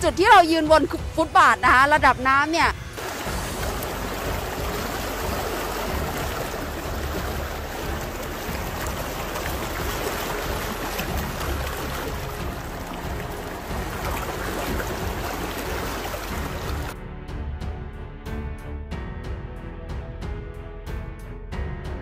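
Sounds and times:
floodwater rushing and splashing: 2.9 - 17.0.

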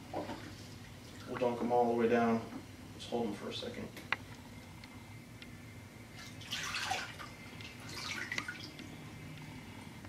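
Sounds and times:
water splashing and streaming: 6.2 - 8.8
water dripping into tub: 6.2 - 9.4.

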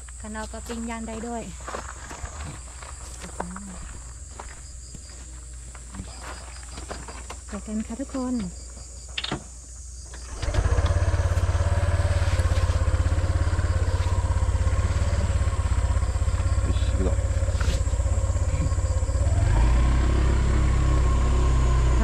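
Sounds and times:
motorcycle engine pulling away: 10.2 - 22.0.

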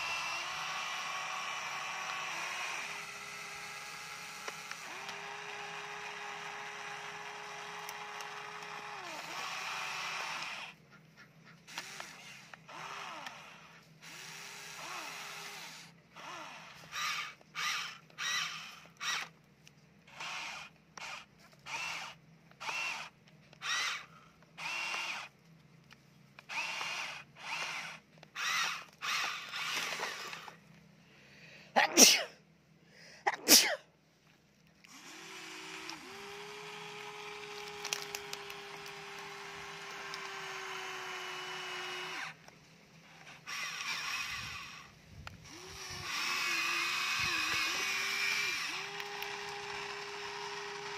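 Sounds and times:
toy excavator motors whining: 0.0 - 19.4, 20.0 - 30.8, 34.8 - 50.9.

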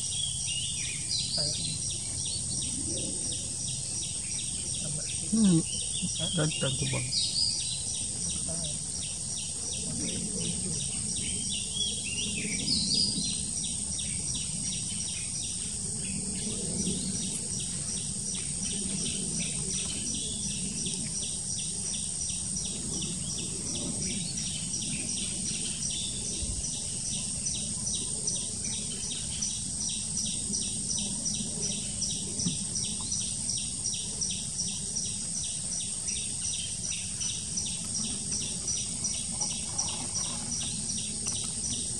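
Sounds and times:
high-pitched insect drone: 0.0 - 41.9
rapid insect pulsing: 0.0 - 41.9.

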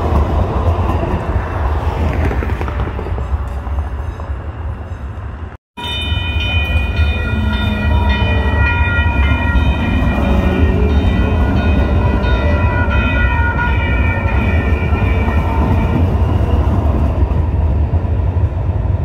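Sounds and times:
train low rumble: 0.0 - 19.0
high-pitched train whine: 3.2 - 18.4.

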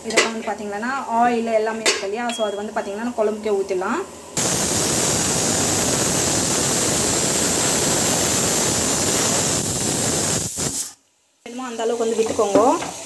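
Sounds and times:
loud oil sizzling: 4.4 - 13.0.

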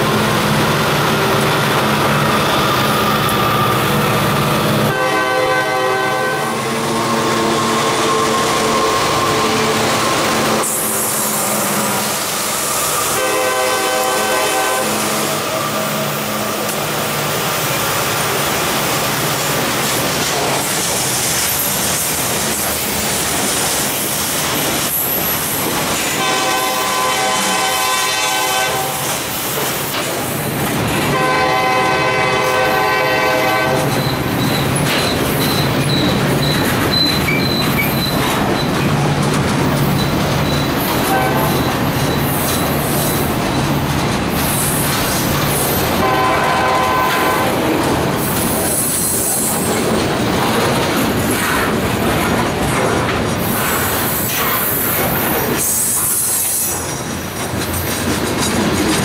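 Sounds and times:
high wheel squeal: 2.1 - 4.7, 33.9 - 38.9, 39.8 - 43.8
locomotive air horn blasts: 4.9 - 9.9, 13.0 - 16.2, 26.1 - 29.2, 31.1 - 34.0, 41.0 - 41.6, 46.0 - 47.7
wheel-on-rail clatter: 47.6 - 59.0.

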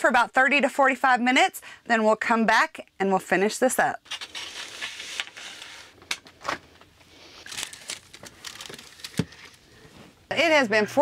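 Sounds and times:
parchment paper crinkling: 4.0 - 6.0, 7.4 - 9.8.

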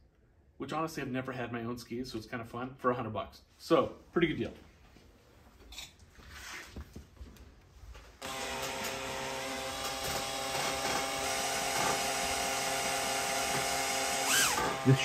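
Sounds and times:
cordless drill drilling: 8.2 - 15.0.

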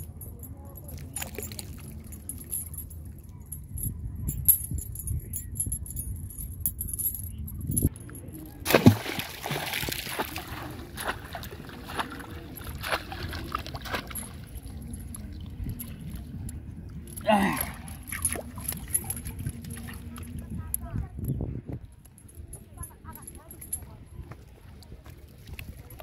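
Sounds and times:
water sloshing: 8.0 - 20.8
splash in river water: 8.6 - 14.2.

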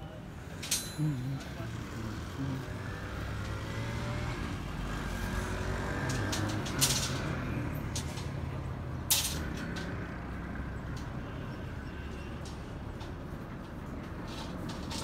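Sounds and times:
steel bars clinking: 0.4 - 3.7, 5.2 - 15.0
light ticks of rebar handled: 5.9 - 11.2.

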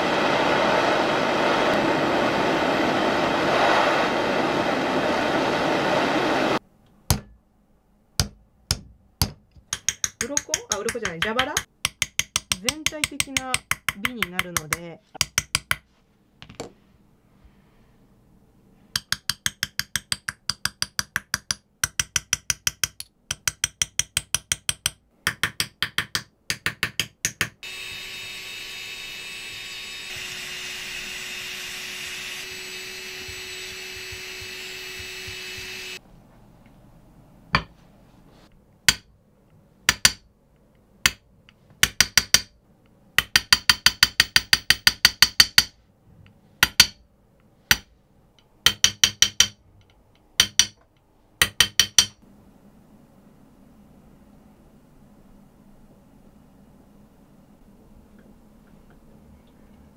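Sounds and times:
hammer tapping on chisel: 7.1 - 7.4, 8.2 - 16.7, 18.9 - 27.6, 33.2 - 35.8, 37.6 - 37.8, 38.8 - 39.1, 39.9 - 40.3, 41.8 - 42.5, 43.2 - 45.8, 46.6 - 47.0, 47.7 - 47.9, 48.6 - 49.6, 50.4 - 52.2
engraving handpiece whirring: 27.6 - 36.0.

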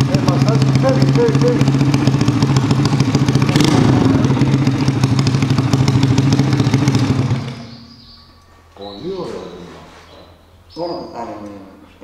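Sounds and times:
moped engine idling: 0.0 - 8.1.

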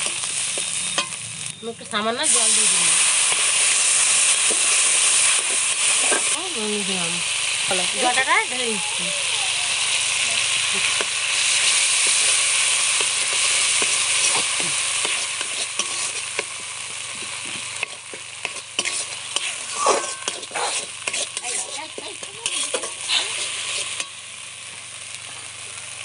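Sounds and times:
paste sizzling in hot oil: 0.0 - 26.0
metal spatula scraping a pan: 3.2 - 6.4, 13.0 - 24.2.

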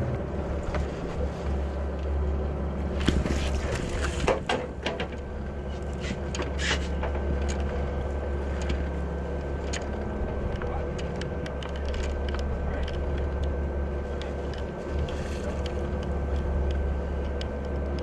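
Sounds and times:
boat engine running: 0.0 - 18.0
knocks and clatters: 3.0 - 5.2.

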